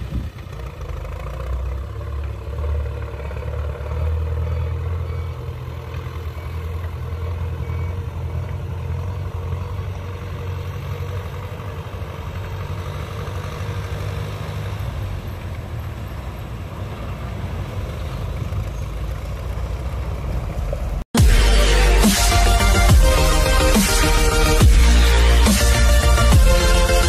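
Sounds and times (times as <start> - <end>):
tractor diesel engine droning: 0.0 - 27.0
loud electronic music: 21.2 - 27.0.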